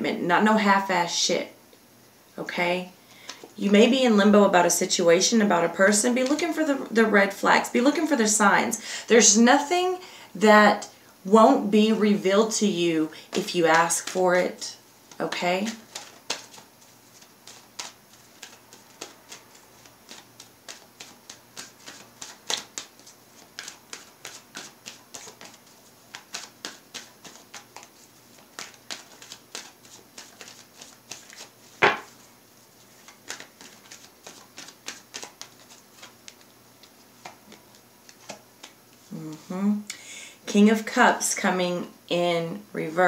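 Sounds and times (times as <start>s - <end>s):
cards being shuffled: 13.3s - 39.6s.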